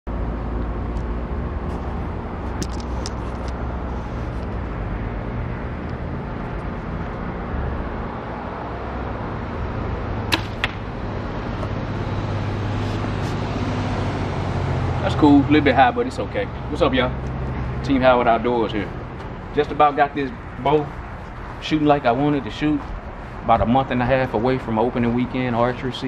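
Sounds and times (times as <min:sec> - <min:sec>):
arrow striking bag target: 0:10.3 - 0:10.8
bow shot crack: 0:10.3 - 0:10.9.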